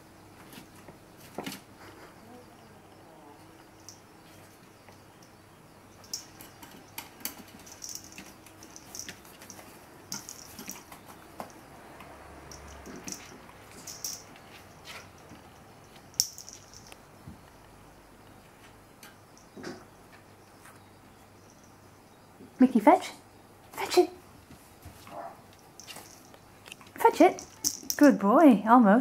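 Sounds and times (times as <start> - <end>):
paws and claws tapping on wood: 6.1 - 17.4.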